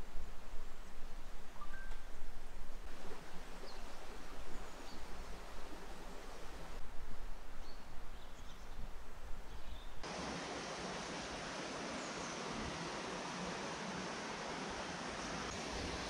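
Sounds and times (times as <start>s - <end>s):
steady hiss: 0.0s - 16.0s
faint bird chirps: 1.5s - 2.2s.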